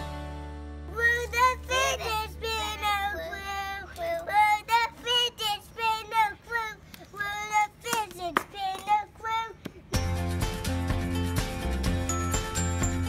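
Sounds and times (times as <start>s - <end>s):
young children chanting: 0.9s - 9.6s.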